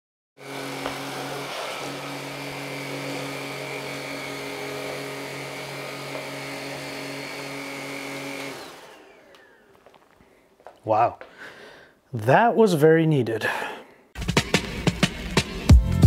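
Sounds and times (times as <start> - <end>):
vacuum cleaner running: 0.4 - 10.4.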